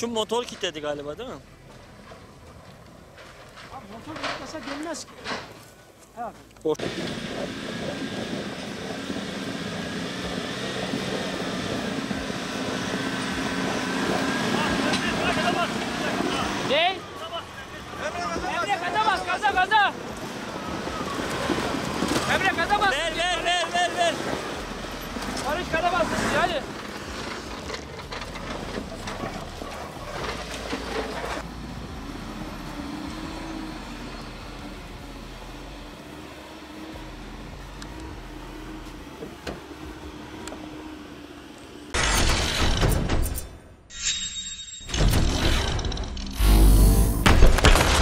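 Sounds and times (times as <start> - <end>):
off-road vehicle engine droning: 0.0 - 42.0, 45.3 - 48.0
vehicle knocks and clatters: 0.2 - 6.1, 24.2 - 31.5.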